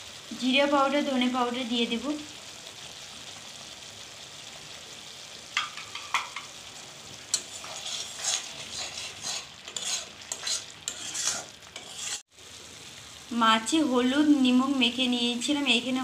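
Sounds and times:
masala sizzling in oil: 0.0s - 16.0s
spatula scraping and stirring: 5.6s - 12.3s.

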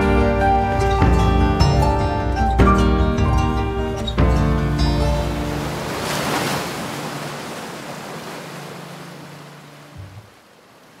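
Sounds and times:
ocean wave washing in: 5.0s - 11.0s.

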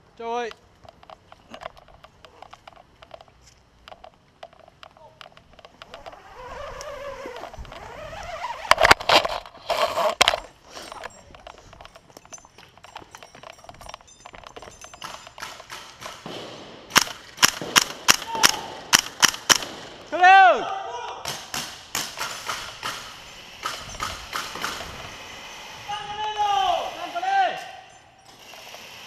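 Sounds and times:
rope rustling and scraping: 4.5s - 14.6s
sharp cracks: 15.0s - 25.3s.

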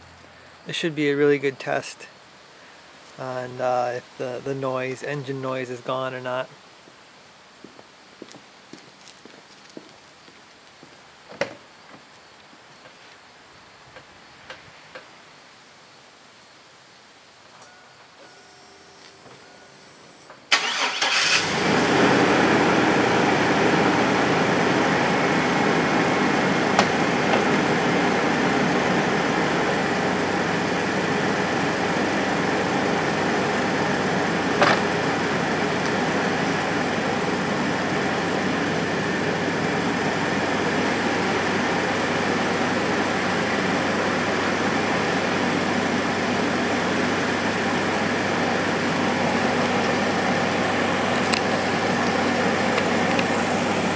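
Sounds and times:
pickup engine starting and idling: 18.3s - 53.9s.

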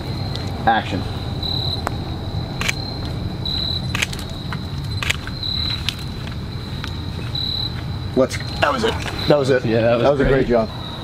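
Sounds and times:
low rumble: 0.0s - 8.1s
crickets trilling: 0.0s - 11.0s
sharp clicks: 2.6s - 3.1s, 3.9s - 6.1s.

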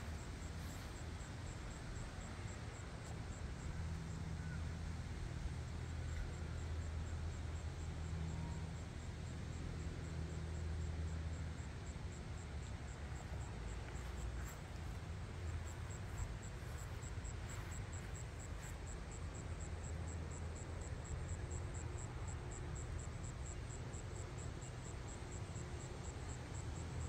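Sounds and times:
insect chirping: 12.6s - 20.4s.

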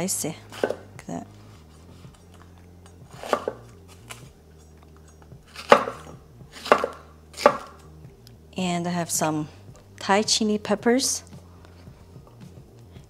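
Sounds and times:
knife chopping on wooden board: 0.5s - 0.8s, 3.1s - 3.7s, 5.5s - 7.8s.

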